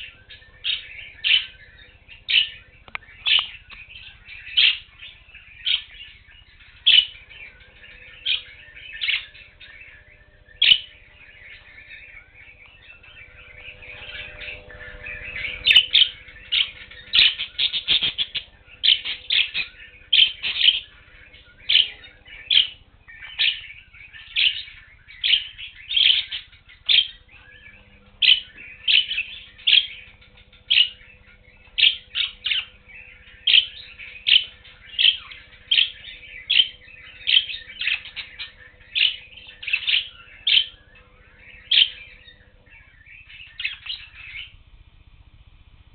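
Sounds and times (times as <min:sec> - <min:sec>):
budgerigars chirping: 0:00.0 - 0:44.6.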